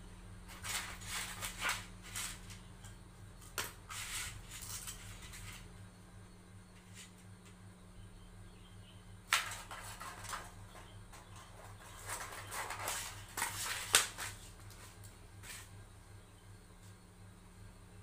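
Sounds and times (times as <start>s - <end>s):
steady low hum: 0.0s - 18.0s
scissors cutting foil: 0.5s - 2.6s, 3.4s - 5.6s, 11.4s - 15.7s
aluminium foil crinkling: 0.5s - 2.7s, 3.5s - 5.7s, 9.3s - 15.7s.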